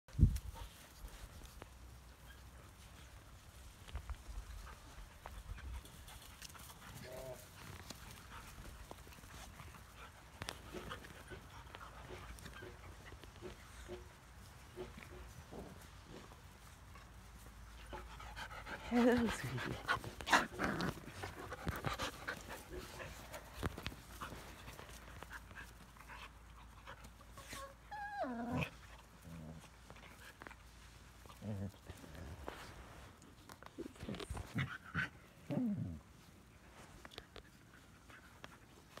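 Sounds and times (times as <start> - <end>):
paws rustling on straw: 0.1 - 39.0
puppies panting: 4.2 - 32.7.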